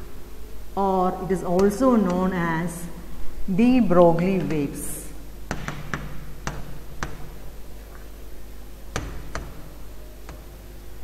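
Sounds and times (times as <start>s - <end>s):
faint steady hum: 0.0s - 11.0s
stylus tapping on a tablet: 5.5s - 7.4s.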